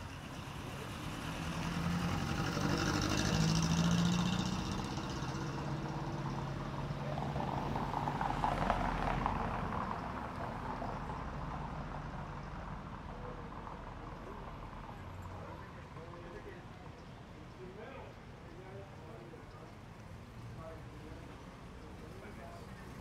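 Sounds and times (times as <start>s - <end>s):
car driving past: 0.0s - 12.2s.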